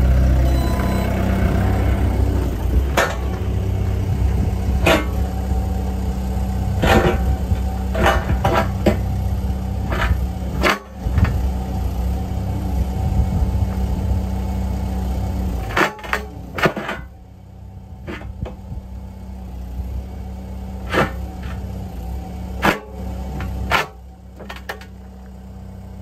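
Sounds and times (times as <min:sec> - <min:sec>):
excavator engine idling: 0:00.0 - 0:26.0.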